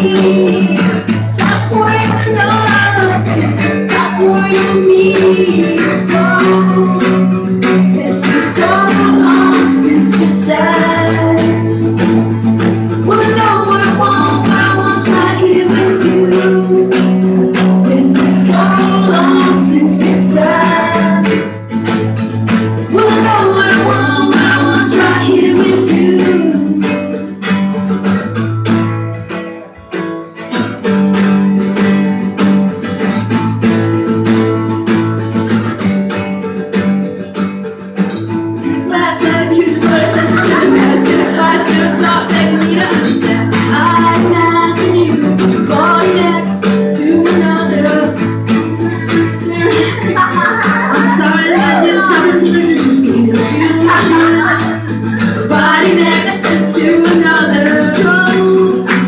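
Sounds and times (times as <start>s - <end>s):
person singing: 0.0s - 11.9s, 12.8s - 21.7s, 22.8s - 27.4s, 38.6s - 59.0s
strummed acoustic guitars: 0.0s - 59.0s.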